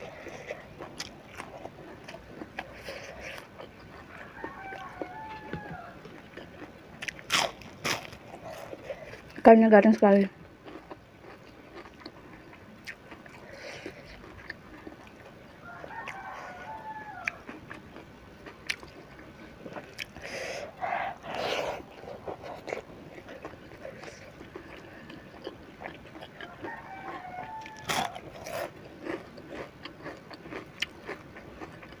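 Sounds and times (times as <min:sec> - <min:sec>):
crunching and chewing fried fish: 0:00.0 - 0:32.0
rooster crowing: 0:04.0 - 0:06.1, 0:15.5 - 0:17.7, 0:20.3 - 0:22.2, 0:26.2 - 0:28.4.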